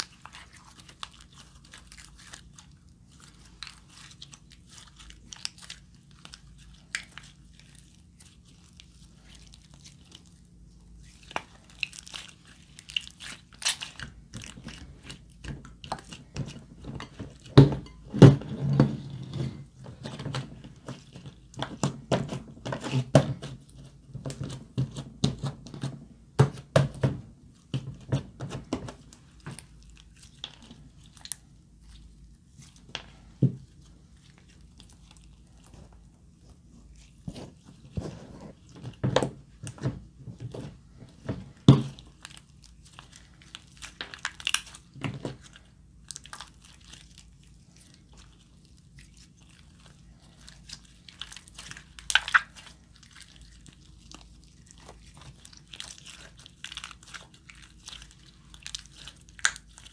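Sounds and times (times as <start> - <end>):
slime clicking and popping: 51.2 - 52.7.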